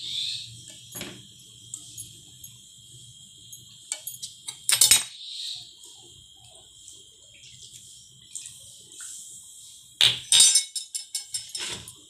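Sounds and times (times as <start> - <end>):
metal utensil clinking on pan: 10.1 - 12.0.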